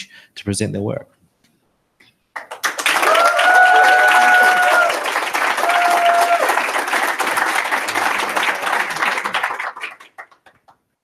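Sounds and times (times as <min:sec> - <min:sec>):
audience applauding: 0:02.3 - 0:10.9
high cheer: 0:02.6 - 0:10.0.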